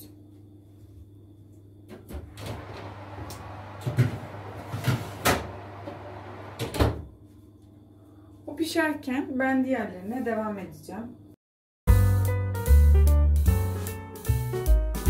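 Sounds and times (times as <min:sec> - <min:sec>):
fan oven rushing: 0:02.0 - 0:07.2
oven door opening: 0:02.2 - 0:07.1
oven door shutting thump: 0:02.2 - 0:07.1
metal tray sliding and clattering: 0:02.6 - 0:05.8.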